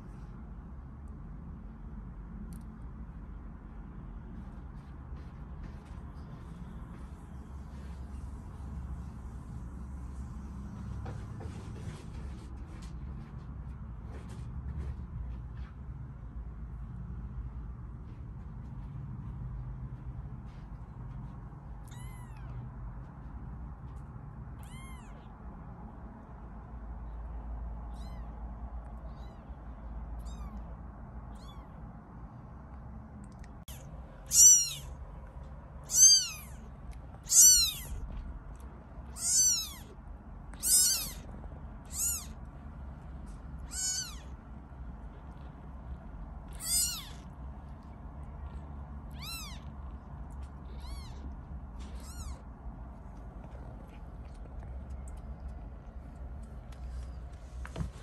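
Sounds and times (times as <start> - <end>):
faint low hum: 0.0 - 58.0
kittens meowing: 21.8 - 22.6, 24.5 - 25.4, 27.7 - 31.9, 33.6 - 35.0, 35.8 - 38.2, 39.0 - 42.5, 43.4 - 44.5, 46.5 - 52.6.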